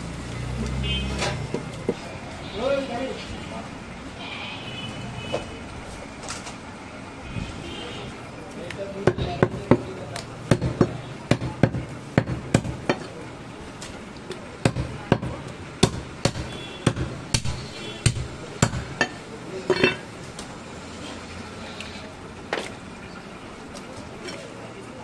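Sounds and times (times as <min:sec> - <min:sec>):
cleaver chopping meat and bone: 0:09.0 - 0:13.1, 0:14.6 - 0:19.2.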